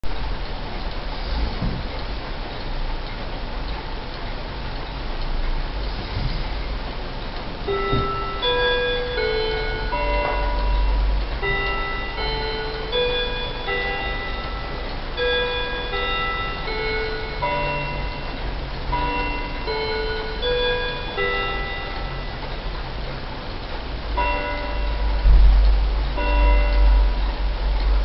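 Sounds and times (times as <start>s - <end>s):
electronic clock chime melody: 7.6s - 23.0s, 24.1s - 28.0s.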